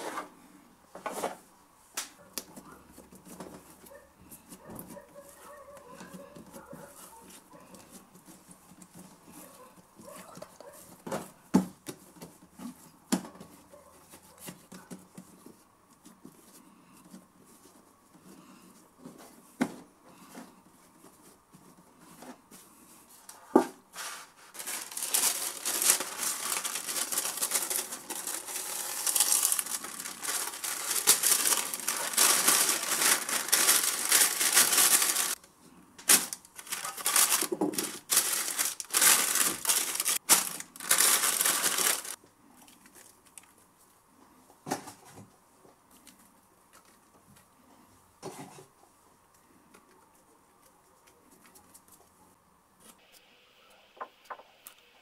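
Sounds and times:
baking paper crinkling: 23.9 - 43.6.

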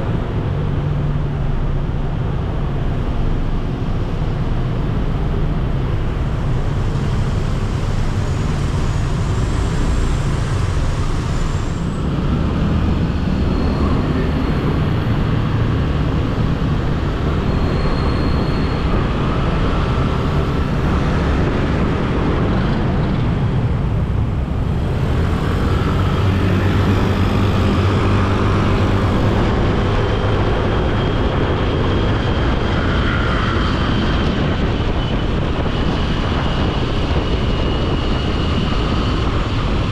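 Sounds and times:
traffic noise: 0.0 - 39.9.

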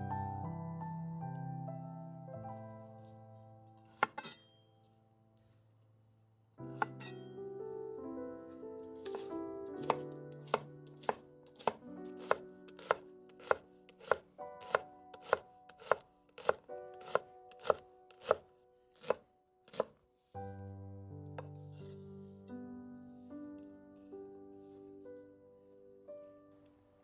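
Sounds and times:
soft background music: 0.0 - 5.6, 6.5 - 27.0
knife chopping on wooden board: 3.9 - 4.4, 9.0 - 18.4, 19.0 - 20.0.

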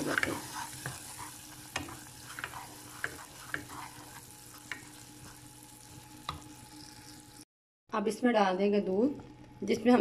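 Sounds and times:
caramel bubbling in a saucepan: 0.0 - 7.4.

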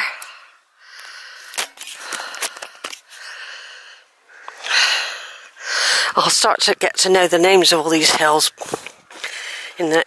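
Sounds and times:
person breathing close to microphone: 0.0 - 6.2, 8.6 - 9.8.

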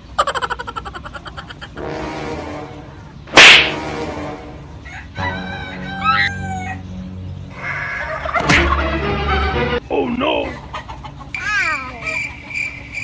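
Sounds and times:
loud sharp bird call: 3.3 - 4.0
roosters crowing: 3.6 - 9.0
turkey gobbling: 7.5 - 9.0, 10.5 - 11.4.

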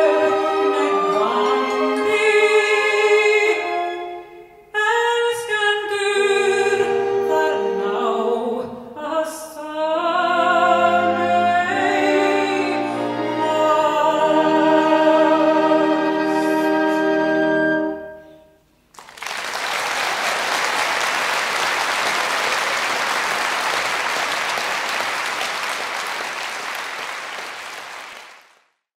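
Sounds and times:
person singing with orchestra: 0.0 - 18.3
audience applauding: 18.9 - 28.7.

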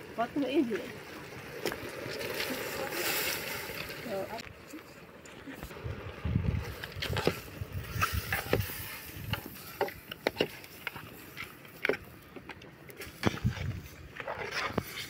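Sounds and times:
spoon stirring in metal pot: 7.1 - 12.1.

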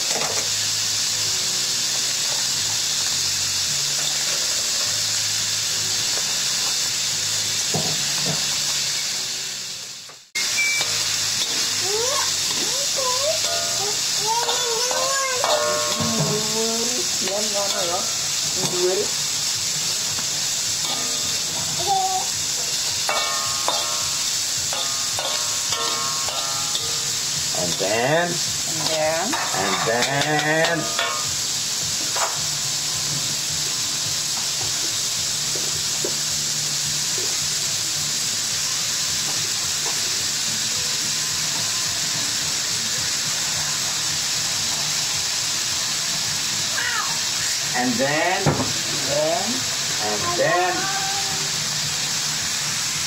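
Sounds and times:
food sizzling in a wok: 0.0 - 53.0
metal spatula stirring: 23.0 - 28.0, 28.8 - 31.3.

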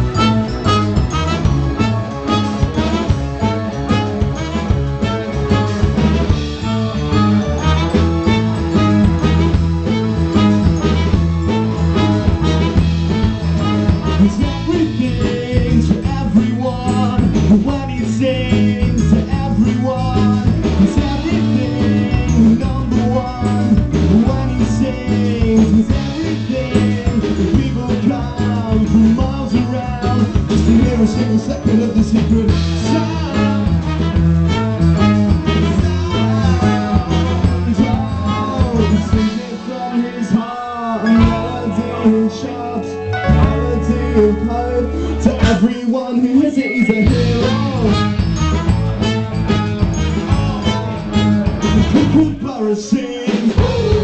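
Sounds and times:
live band playing upbeat music: 0.0 - 54.0
person singing: 6.7 - 49.1, 49.8 - 54.0.

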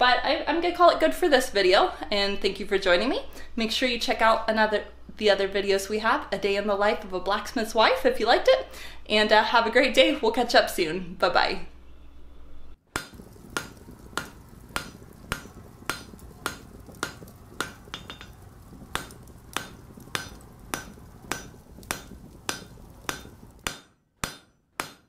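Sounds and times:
hammer striking an anvil: 19.0 - 25.0.

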